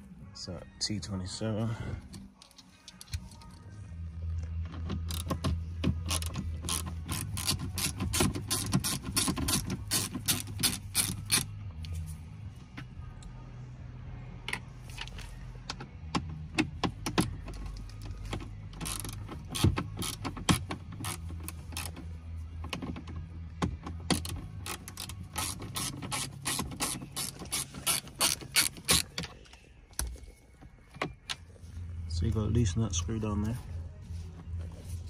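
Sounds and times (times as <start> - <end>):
hand ratchet clicking: 4.9 - 11.5, 16.1 - 22.1, 23.7 - 29.3.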